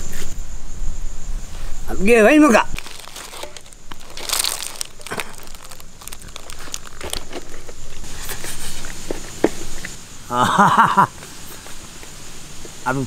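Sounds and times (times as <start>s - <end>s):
banana leaf crinkling: 2.4s - 8.3s.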